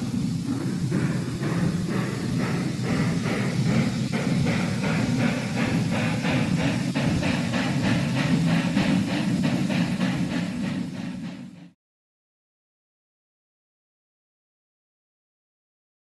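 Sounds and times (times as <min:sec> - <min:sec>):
steam locomotive chuffing: 0:00.0 - 0:11.8.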